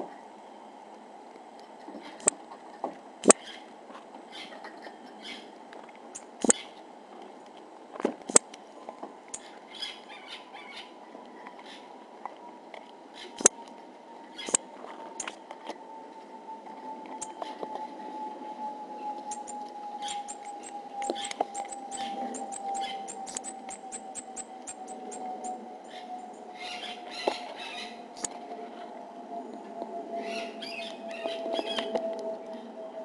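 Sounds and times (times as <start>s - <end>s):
marmosets chirping: 5.2s - 5.5s, 6.2s - 6.8s, 9.3s - 10.9s, 14.4s - 14.6s, 19.3s - 28.3s.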